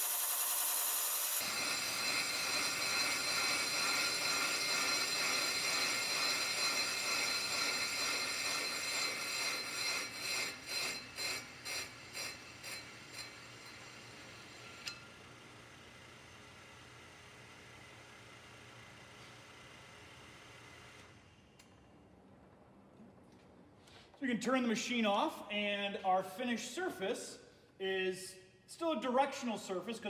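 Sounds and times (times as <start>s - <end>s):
brake lathe scraping metal: 0.0s - 15.0s.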